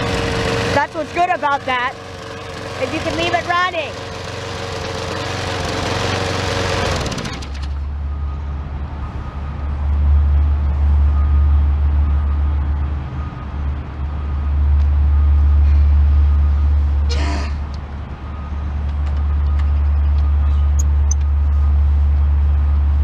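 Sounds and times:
lawn mower engine running: 0.0 - 8.4.

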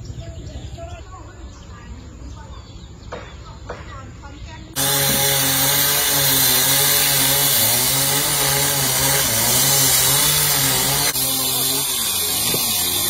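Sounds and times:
two-stroke chainsaw running: 4.8 - 13.0.

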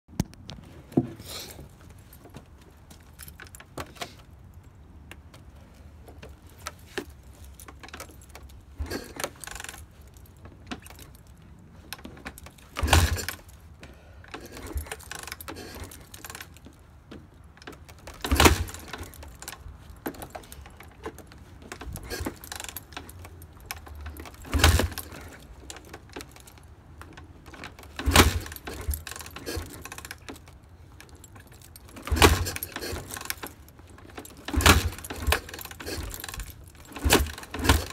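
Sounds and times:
motorcycle kickstarter kicks: 0.1 - 4.3, 6.1 - 37.9
engine turning over clatter: 7.7 - 10.2, 12.1 - 13.6, 17.8 - 26.6, 27.4 - 30.6, 31.2 - 37.9.

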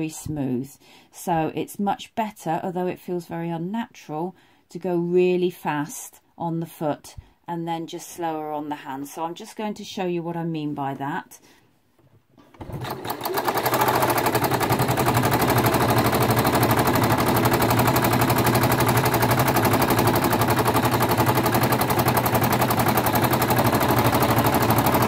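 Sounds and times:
sewing machine stitching: 12.4 - 25.0.

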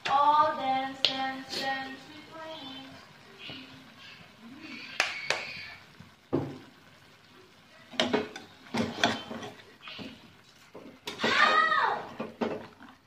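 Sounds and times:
metal spatula scraping a pan: 8.0 - 10.2.

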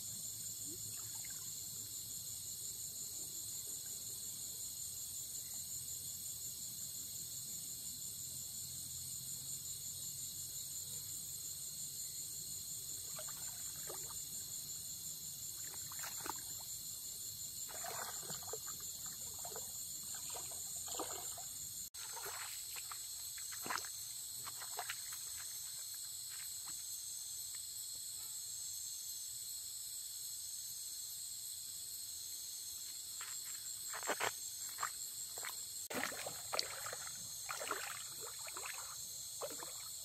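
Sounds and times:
crickets trilling: 0.0 - 40.0
water splashing from wading: 15.6 - 16.6, 17.7 - 25.5, 34.8 - 40.0.

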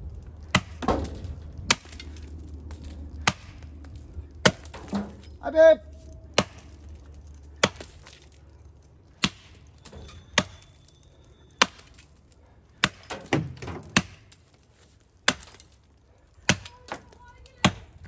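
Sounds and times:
axe chopping tree: 0.5 - 2.2, 3.2 - 3.6, 4.4 - 5.2, 6.3 - 6.8, 7.6 - 8.2, 9.2 - 9.6, 11.6 - 12.0, 12.8 - 14.4, 15.2 - 15.8, 16.4 - 18.0.

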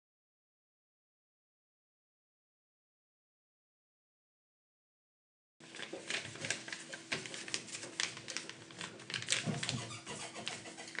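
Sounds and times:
paper rustling and crinkling: 5.6 - 11.0.

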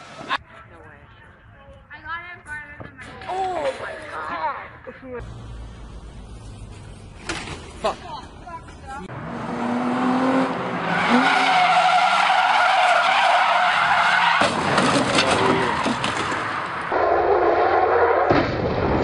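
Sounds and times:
car engine revving: 9.1 - 12.6
car tyres squealing: 10.4 - 18.3.

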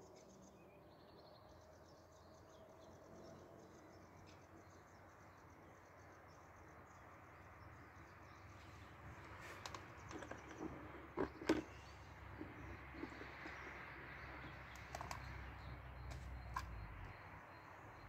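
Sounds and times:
gear and bucket clicks and knocks: 9.2 - 15.4.

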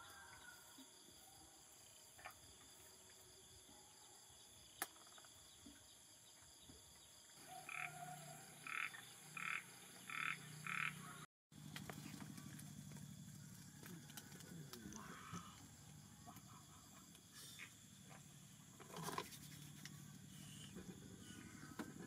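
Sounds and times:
frog croaking: 7.5 - 11.2, 13.8 - 17.0.

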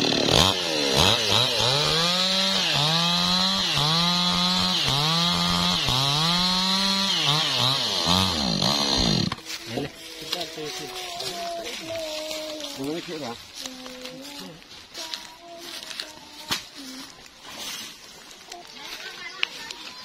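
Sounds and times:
chainsaw cutting log: 0.0 - 14.2.

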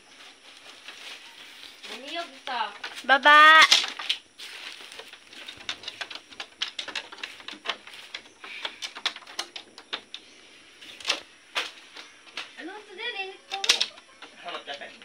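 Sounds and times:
cat claws scratching bamboo lattice: 4.8 - 10.1.

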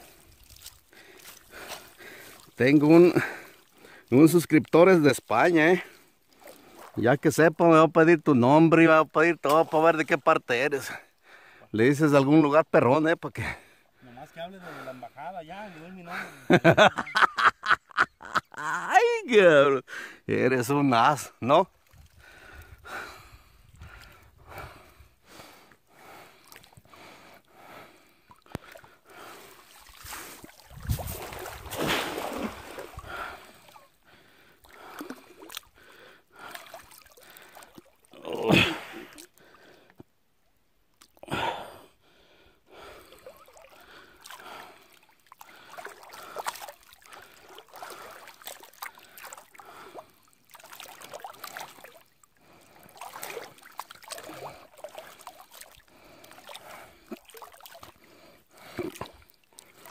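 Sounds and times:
water sloshing around legs: 0.0 - 4.7, 6.0 - 7.0, 28.2 - 38.2, 42.8 - 59.9
water splashes: 0.0 - 7.5, 9.2 - 11.0, 26.0 - 39.8, 42.7 - 59.9
person breathing: 0.9 - 2.5, 10.9 - 11.7, 19.9 - 20.3, 22.2 - 30.5, 33.0 - 37.7, 41.3 - 46.4.

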